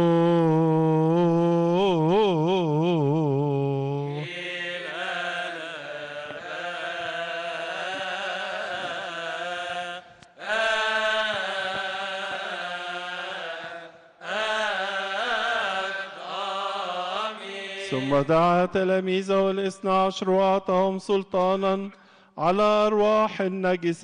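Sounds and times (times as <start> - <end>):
men singing liturgical chant: 1.2 - 21.8.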